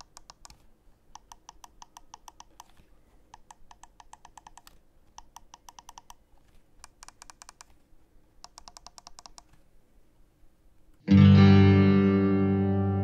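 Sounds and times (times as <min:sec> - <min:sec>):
mouse buttons clicking: 0:00.0 - 0:07.8, 0:08.4 - 0:09.6
distorted electric guitar music: 0:11.1 - 0:13.0.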